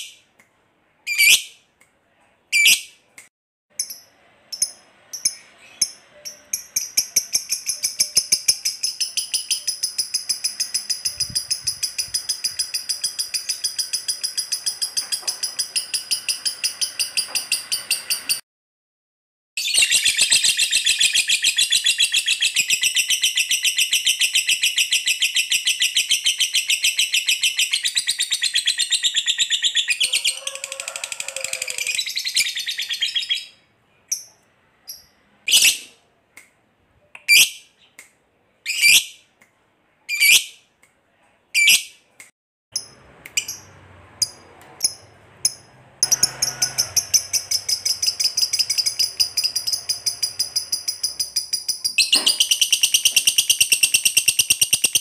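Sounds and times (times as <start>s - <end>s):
bird chattering trill: 4.6s - 18.3s, 44.8s - 55.0s.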